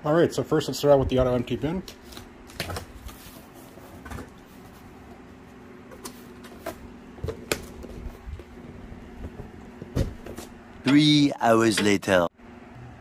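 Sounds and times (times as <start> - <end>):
knocks and rustles: 5.9 - 10.6.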